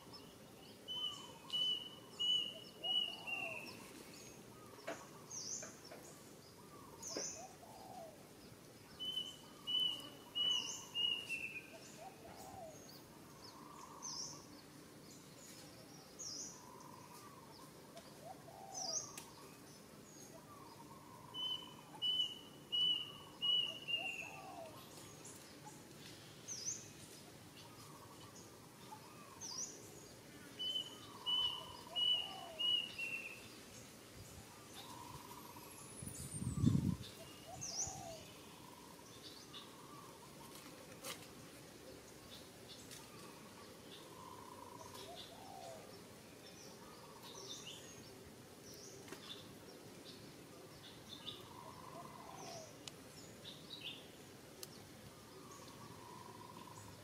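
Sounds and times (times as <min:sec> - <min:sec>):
bird chirps: 0:00.0 - 0:08.2, 0:08.9 - 0:14.6, 0:15.2 - 0:27.0, 0:27.6 - 0:33.7
bird song phrase: 0:00.0 - 0:27.0, 0:27.6 - 0:40.6, 0:41.8 - 0:57.0.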